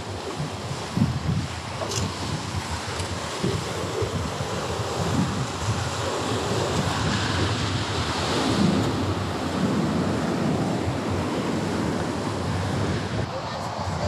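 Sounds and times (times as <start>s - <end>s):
ocean surf rushing: 0.0s - 14.0s
wind buffeting microphone: 0.0s - 14.0s.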